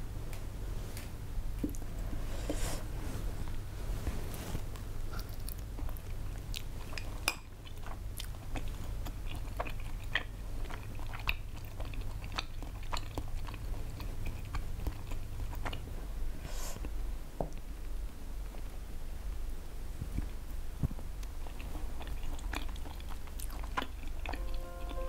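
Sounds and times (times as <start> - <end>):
steady low hum: 0.0 - 25.0
wet sticky chewing: 5.1 - 15.9, 21.2 - 25.0.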